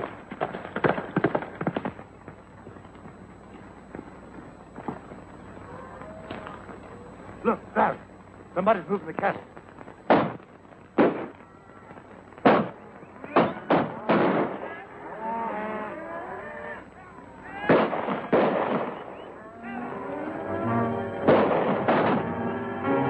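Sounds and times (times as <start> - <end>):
gunshots: 0.4 - 2.0, 10.1 - 11.4, 12.4 - 14.9, 17.6 - 19.3, 21.2 - 22.4
orchestral soundtrack music: 19.8 - 23.0.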